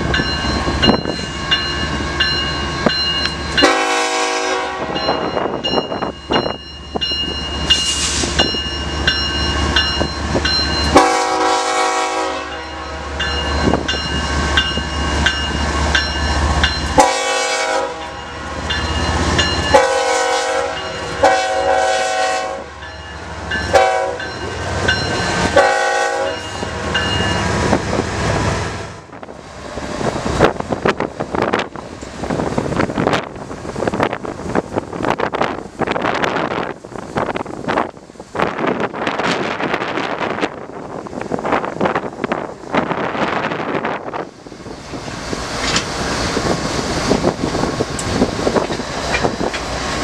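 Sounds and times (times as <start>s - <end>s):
crossing signal bell ringing: 0.0s - 4.2s, 4.8s - 11.4s, 12.2s - 21.7s, 22.6s - 27.8s
diesel locomotives rumbling: 0.0s - 50.0s
multi-chime train air horn blasts: 3.5s - 5.5s, 10.8s - 13.8s, 16.9s - 18.7s, 19.5s - 22.9s, 23.6s - 24.5s, 25.1s - 27.4s.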